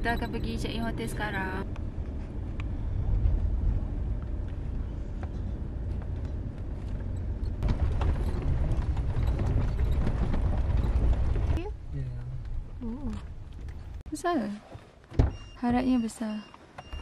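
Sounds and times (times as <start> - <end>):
engine and tyre rumble: 0.0 - 15.6
interior rattles and knocks: 3.1 - 11.8.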